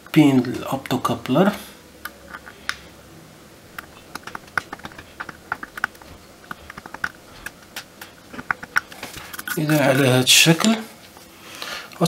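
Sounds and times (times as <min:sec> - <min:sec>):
blade scraping circuit board: 0:03.8 - 0:10.3.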